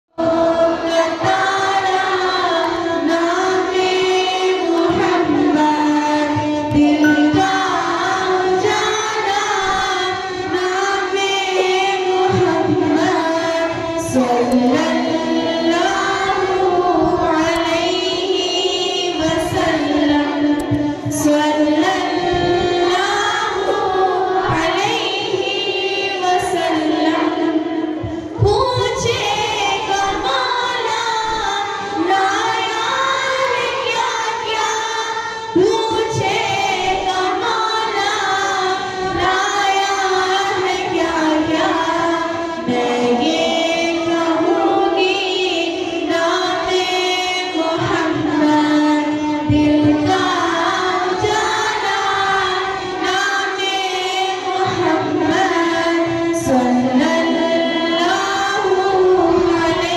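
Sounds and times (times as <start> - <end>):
girl singing devotional song: 0.1 - 59.9.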